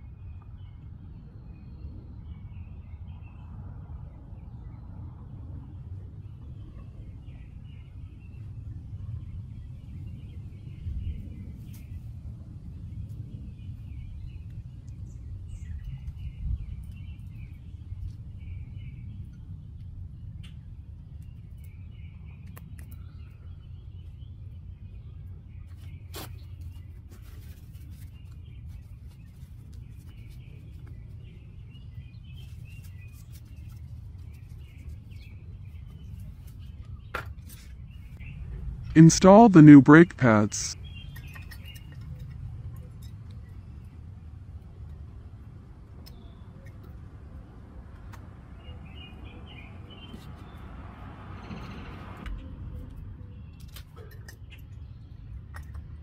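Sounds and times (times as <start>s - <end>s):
low outdoor rumble: 32.4s - 56.0s
birds chirping: 37.8s - 42.1s.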